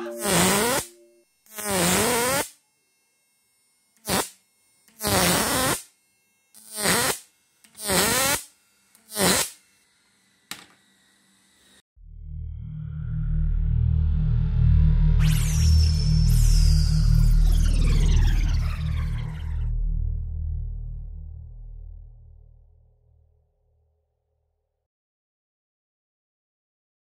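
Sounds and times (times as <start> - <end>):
electronic music: 0.0 - 1.2, 12.5 - 21.1
electric buzzing bursts: 0.0 - 11.8.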